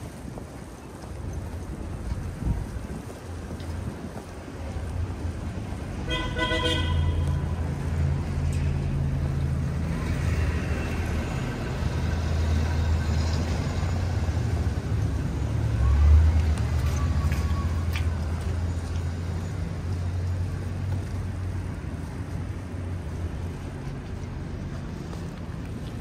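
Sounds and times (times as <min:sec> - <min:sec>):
street traffic engine rumble: 0:00.0 - 0:26.0
vehicle horn toot: 0:06.1 - 0:07.4.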